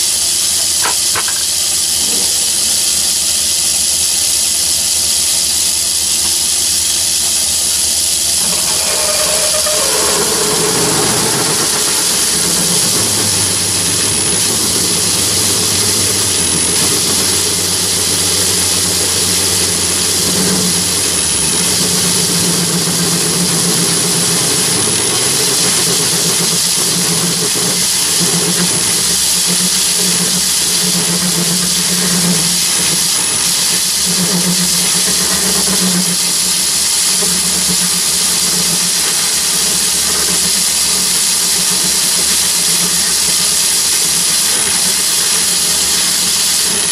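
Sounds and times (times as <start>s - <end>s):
lathe drilling steel: 0.0s - 46.9s
low pulsing hum: 8.3s - 24.4s.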